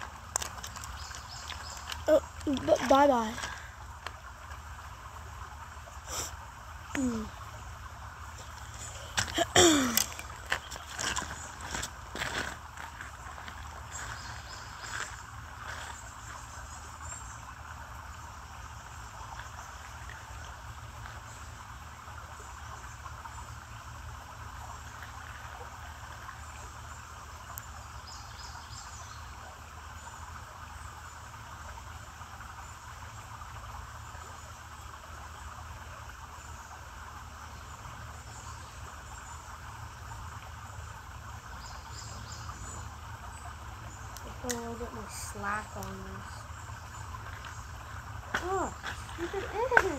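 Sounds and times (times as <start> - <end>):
insect chorus buzzing: 0.0 - 4.1, 5.9 - 29.3, 37.4 - 49.9
low steady rumble: 0.0 - 49.9.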